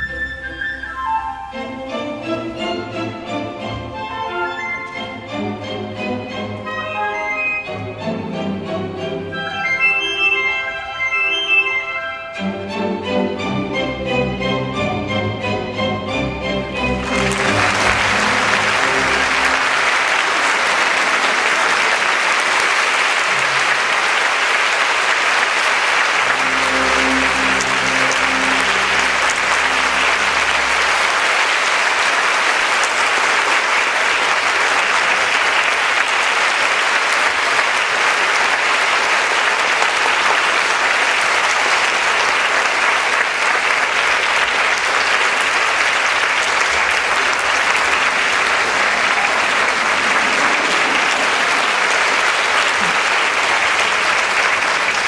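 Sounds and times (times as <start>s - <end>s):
large audience applauding: 16.8s - 55.0s.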